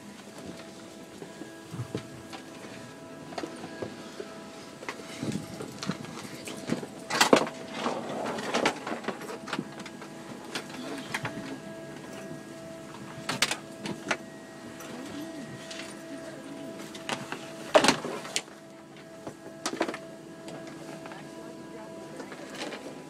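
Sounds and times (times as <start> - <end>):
aircraft cabin whine and hum: 0.0 - 23.0.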